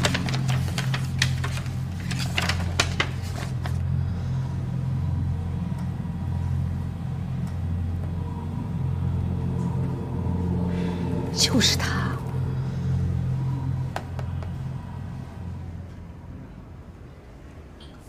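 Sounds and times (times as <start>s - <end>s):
paper pages flipping: 0.0s - 3.9s
low drone: 0.0s - 17.9s.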